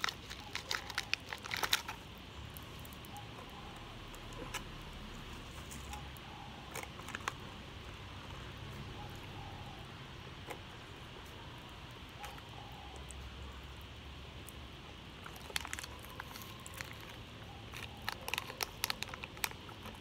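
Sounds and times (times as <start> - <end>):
wrapper crackling: 0.0 - 3.1, 15.2 - 20.0
candy wrapper crinkling: 0.0 - 3.2, 4.1 - 7.6, 15.2 - 20.0.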